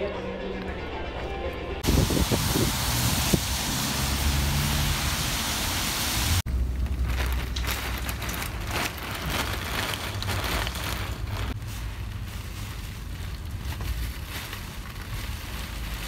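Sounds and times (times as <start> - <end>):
heavy rain on street: 1.8 - 6.4
tyres swishing on wet road: 1.8 - 6.4.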